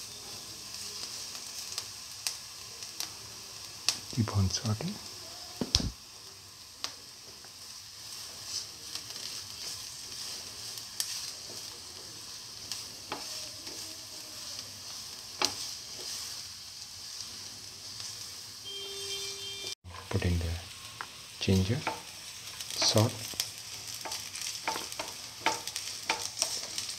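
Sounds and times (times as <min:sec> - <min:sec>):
onions sizzling in oil: 0:00.0 - 0:26.9
spatula knocking on pan: 0:24.6 - 0:26.3.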